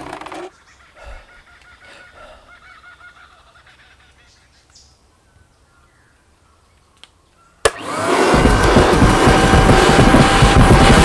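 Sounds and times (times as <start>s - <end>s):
faint bird calls: 0.0s - 7.7s
vacuum cleaner motor running: 7.7s - 11.0s.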